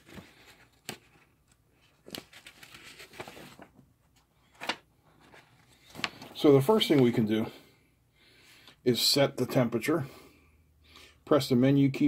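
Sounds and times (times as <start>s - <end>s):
paper rustling: 0.0s - 7.1s.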